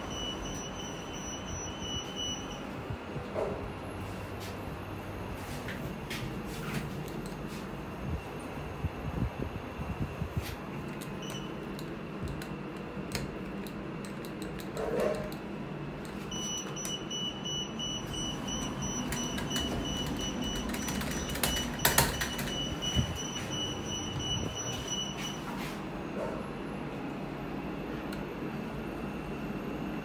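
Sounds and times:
lift car low hum: 0.0s - 30.0s
high electronic tone: 16.3s - 25.5s.

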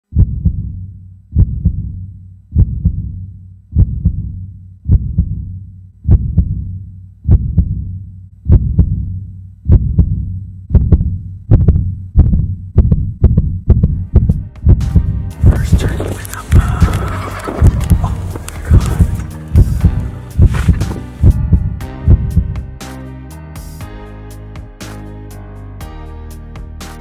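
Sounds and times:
heartbeat thumps: 0.1s - 22.7s.

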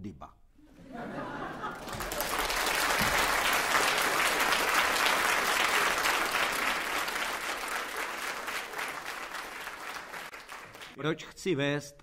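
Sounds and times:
audience applauding: 1.4s - 11.0s.

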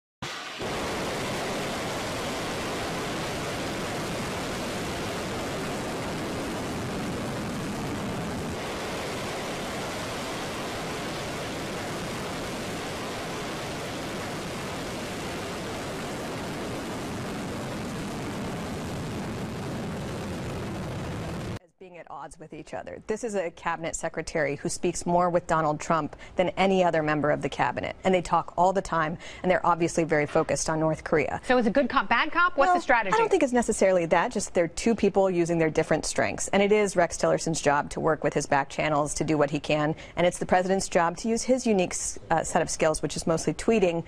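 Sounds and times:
rocket engine roaring: 0.2s - 21.6s.

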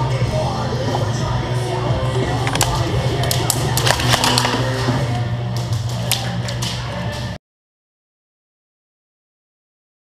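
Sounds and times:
loud rock music: 0.0s - 7.4s.

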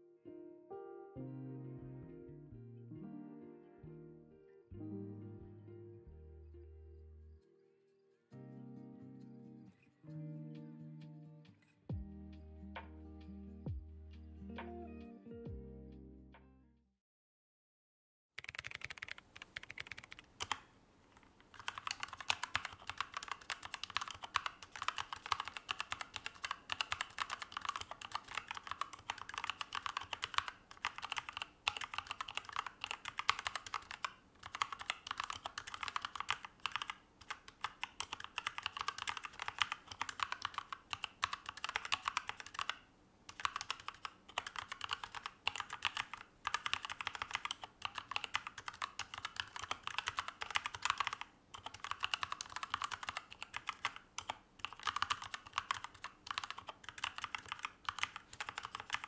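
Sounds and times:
mechanical keyboard typing: 18.4s - 59.0s.

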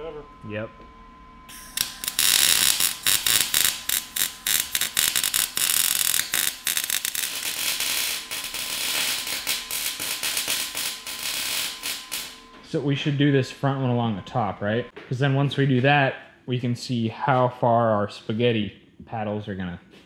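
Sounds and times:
arc welding crackling sizzle: 1.5s - 12.6s.

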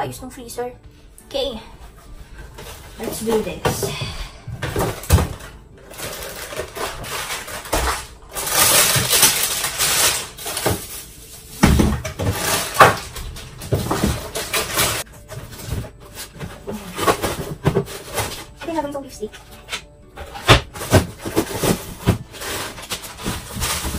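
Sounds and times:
plastic drawers knocking and clattering: 2.6s - 11.0s, 11.6s - 18.7s, 20.2s - 23.9s
rustling of food packaging: 4.7s - 18.6s, 20.4s - 23.9s.

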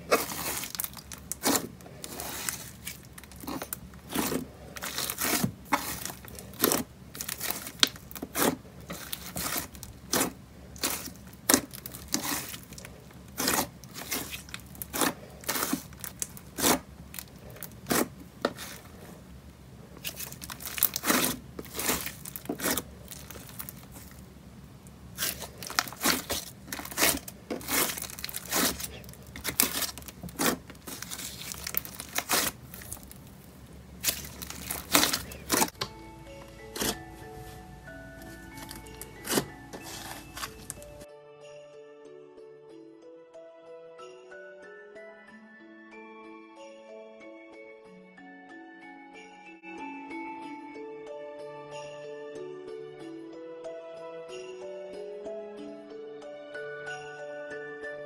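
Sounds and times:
slime crackling and squishing: 0.0s - 19.3s, 19.9s - 24.3s, 25.0s - 35.8s, 38.1s - 41.1s.

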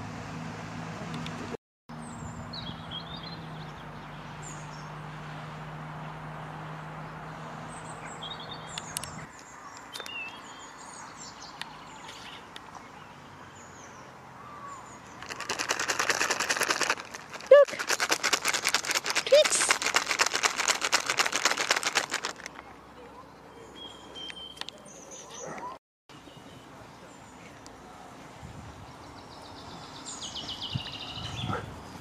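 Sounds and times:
foil packet crinkling: 15.2s - 22.5s
birds chirping and singing: 29.0s - 32.0s.

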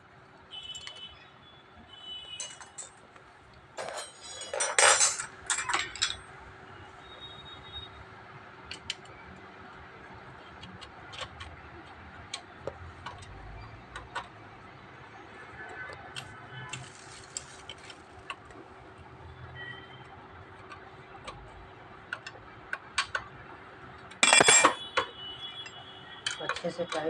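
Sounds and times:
metal tools clinking on bicycle parts: 2.3s - 3.0s, 3.8s - 6.3s, 24.2s - 27.0s.

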